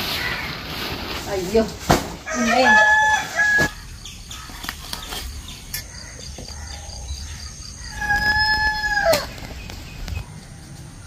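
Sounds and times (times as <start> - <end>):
rooster crowing: 2.3 - 3.8, 7.8 - 9.4.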